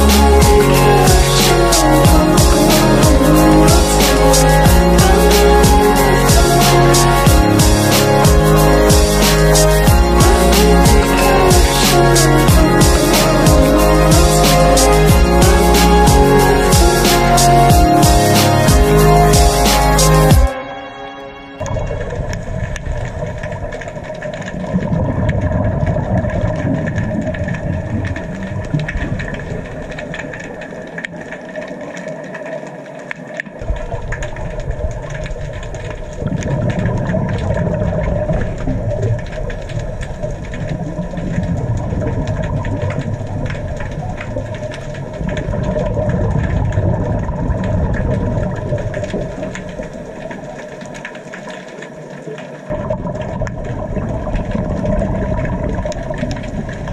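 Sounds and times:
underwater regulator bubbles: 0:21.6 - 0:56.9.

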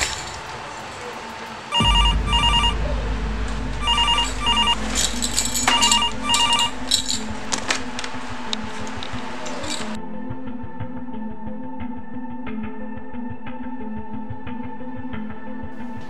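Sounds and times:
steady low hum: 0:01.8 - 0:10.0
telephone double ring: 0:05.8 - 0:06.7.

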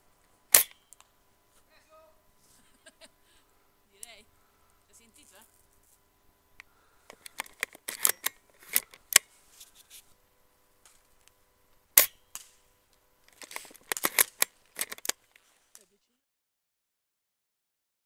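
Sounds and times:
airsoft gunfire cracks: 0:00.5 - 0:00.9, 0:12.0 - 0:12.6
gun handling clicks: 0:00.5 - 0:01.1, 0:07.1 - 0:09.3, 0:12.0 - 0:12.6, 0:13.3 - 0:15.4.

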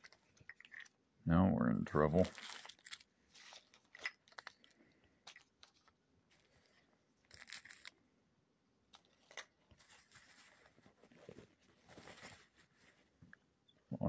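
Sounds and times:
plastic bag crinkling: 0:02.0 - 0:07.9.

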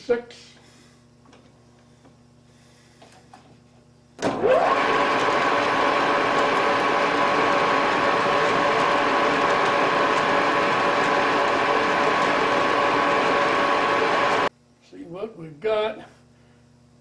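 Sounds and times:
lathe motor and gear whine: 0:04.2 - 0:14.5.

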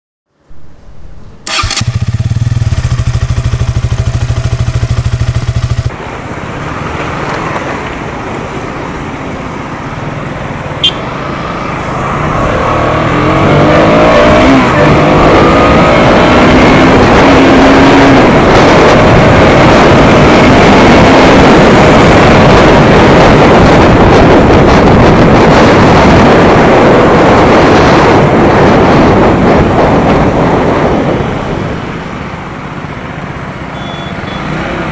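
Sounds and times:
wind rush at road speed: 0:00.3 - 0:34.9
motorcycle engine: 0:01.4 - 0:07.3, 0:10.2 - 0:22.3.

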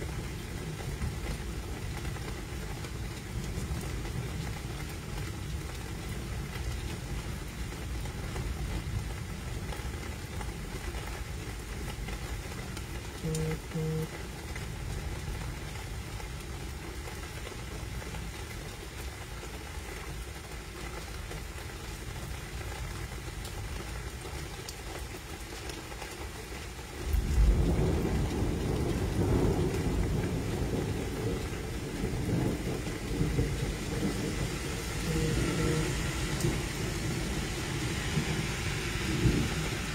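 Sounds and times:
steady rain: 0:00.0 - 0:39.9
short beeps: 0:13.2 - 0:14.1, 0:35.1 - 0:36.0
thunder rumbling: 0:27.0 - 0:39.9.

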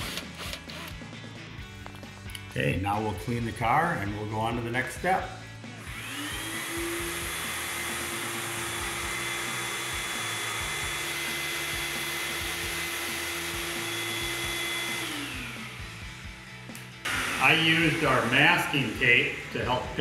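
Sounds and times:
shop vacuum running: 0:05.7 - 0:20.0.

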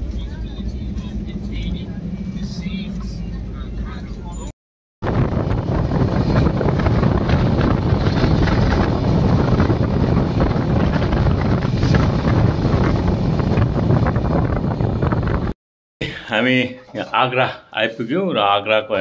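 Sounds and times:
train rumbling on rails: 0:00.0 - 0:15.6
wind buffeting microphone: 0:05.0 - 0:15.6.

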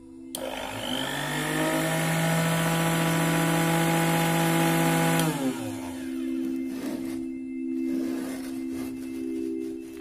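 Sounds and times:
blender motor whining: 0:00.4 - 0:07.0.

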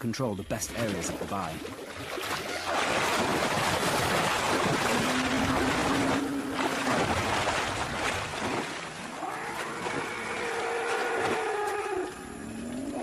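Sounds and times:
elephants roaring: 0:04.8 - 0:07.3, 0:09.1 - 0:13.0.

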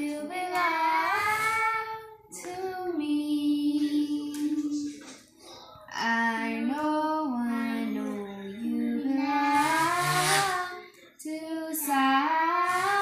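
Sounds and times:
girl singing: 0:00.0 - 0:05.0, 0:05.9 - 0:13.0.

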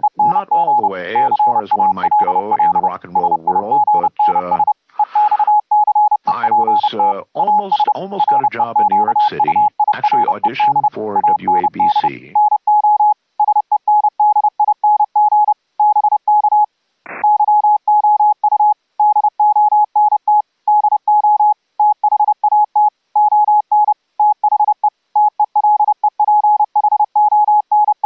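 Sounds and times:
morse code tone: 0:00.0 - 0:28.0.

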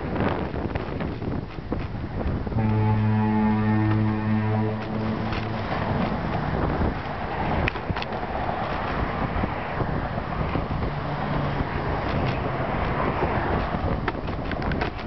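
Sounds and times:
wind on microphone: 0:00.0 - 0:15.0
car traffic passing: 0:02.2 - 0:15.0
low foghorn blast: 0:02.4 - 0:06.9.

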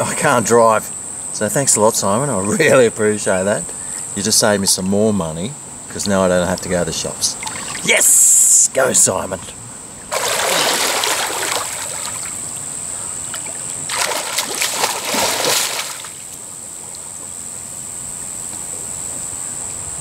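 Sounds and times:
water lapping: 0:07.3 - 0:07.9, 0:10.0 - 0:17.1
swimmer splashing in pool: 0:07.4 - 0:08.6, 0:10.1 - 0:16.4.

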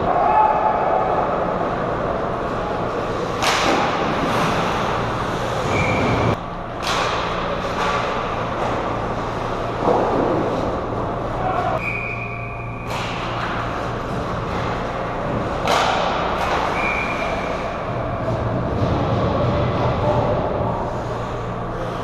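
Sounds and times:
steady low hum: 0:00.0 - 0:22.0
sticks and puck clattering: 0:02.4 - 0:21.2
skates scraping ice: 0:02.5 - 0:06.4.

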